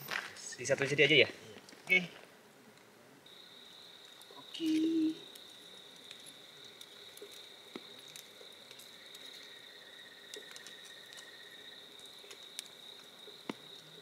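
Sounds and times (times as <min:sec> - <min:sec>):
crickets trilling: 0:03.2 - 0:14.0
small clicks and ticks: 0:04.0 - 0:14.0.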